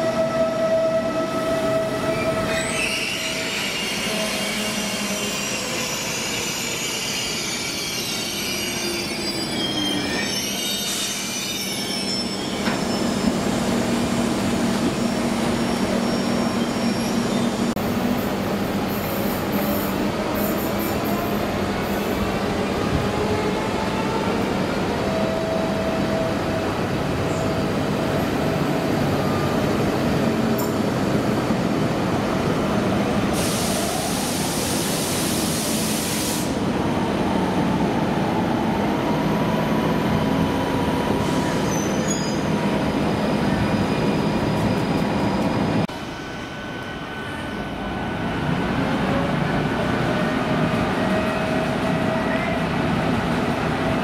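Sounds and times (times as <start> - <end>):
air brake hiss: 33.3 - 36.6.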